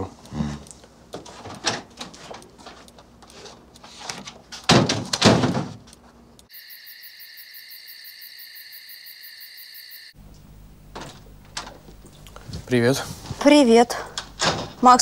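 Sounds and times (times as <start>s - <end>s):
crickets chirring: 6.5s - 13.0s.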